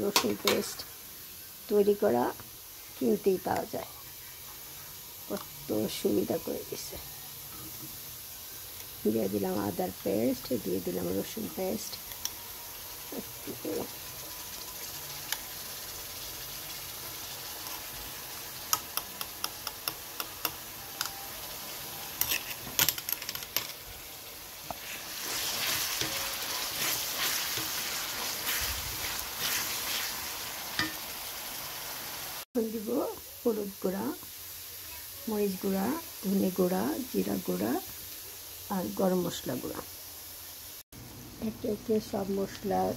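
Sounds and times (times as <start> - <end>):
onion sizzling in hot oil: 0.0 - 42.9
wooden spoon stirring frying mixture: 24.6 - 31.5.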